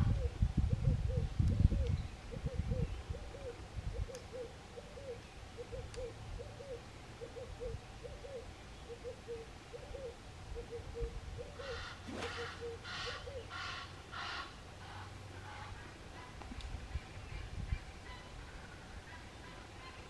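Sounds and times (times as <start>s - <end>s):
dove cooing: 0.0s - 13.9s.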